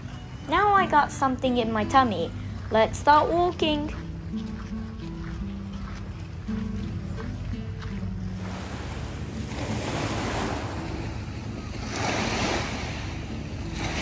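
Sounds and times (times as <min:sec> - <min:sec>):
background music: 0:00.0 - 0:14.0
sea waves washing in: 0:08.2 - 0:14.0.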